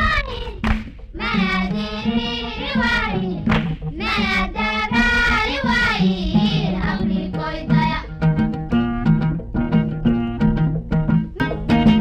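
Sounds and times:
high voice singing: 0.0s - 8.1s
low repeating accompaniment: 0.0s - 12.0s.

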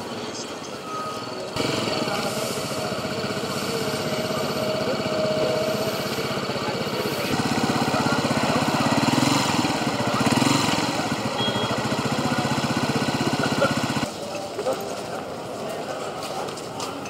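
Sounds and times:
motorcycle engine running: 1.5s - 14.2s.

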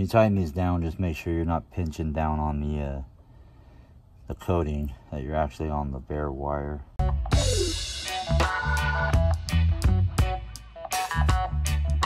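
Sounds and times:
speech: 0.0s - 3.1s, 4.3s - 6.9s
background music with drums and bass: 7.0s - 12.0s.

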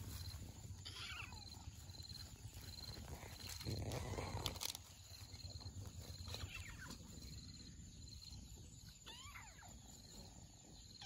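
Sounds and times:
kittens mewing: 0.8s - 1.7s, 9.0s - 9.9s.

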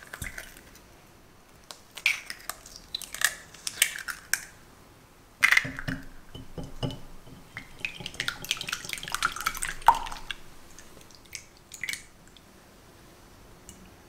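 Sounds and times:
whisk tapping glass bowl: 5.6s - 11.0s
whisk beating eggs sloshing: 5.6s - 12.0s.

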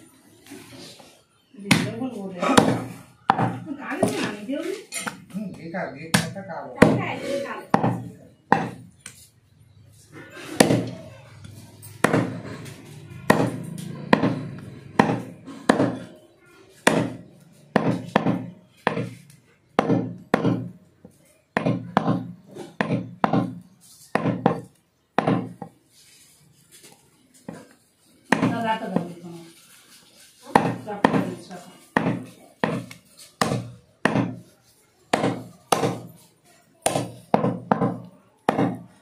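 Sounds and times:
cleaver chopping meat and bone: 1.7s - 4.3s, 6.1s - 7.0s, 7.7s - 8.9s, 10.6s - 11.0s, 11.9s - 16.1s, 16.8s - 19.2s, 19.8s - 20.8s, 21.6s - 25.8s, 28.3s - 29.1s, 30.5s - 31.4s, 32.0s - 34.5s, 35.1s - 36.2s, 36.8s - 39.0s.

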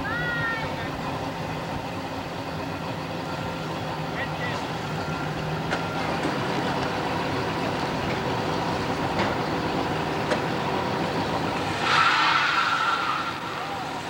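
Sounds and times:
van engine running: 0.0s - 14.0s
high noisy screech: 11.6s - 14.0s.

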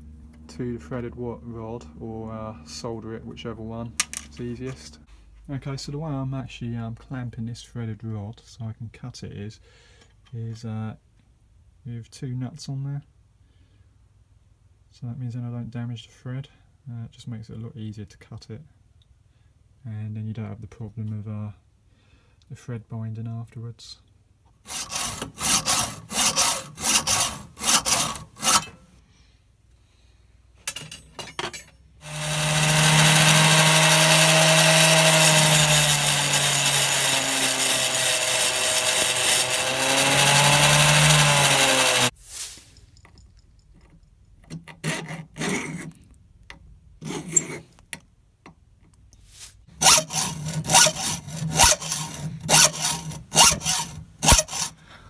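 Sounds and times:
hacksaw cutting steel rod: 24.7s - 28.8s, 32.0s - 42.1s, 49.7s - 54.8s
bench grinder whine: 32.0s - 42.1s, 49.8s - 54.8s.

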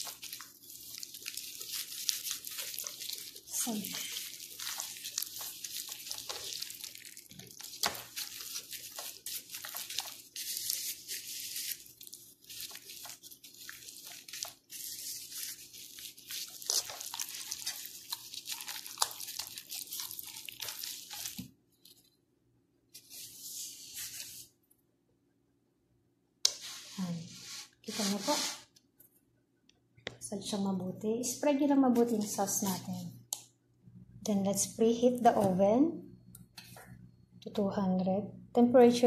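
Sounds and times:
hands squelching marinade into chicken: 0.0s - 21.4s.

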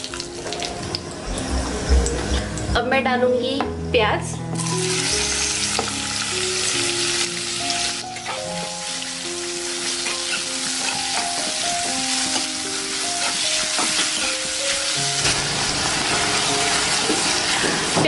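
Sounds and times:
background music: 0.0s - 18.0s
onions sizzling in hot oil: 4.6s - 18.0s.

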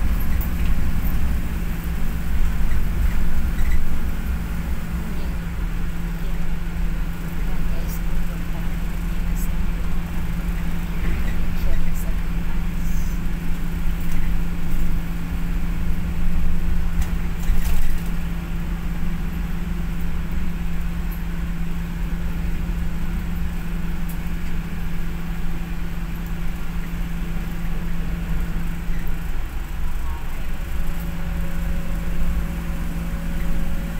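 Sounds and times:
vehicle cabin drone: 0.0s - 33.9s.

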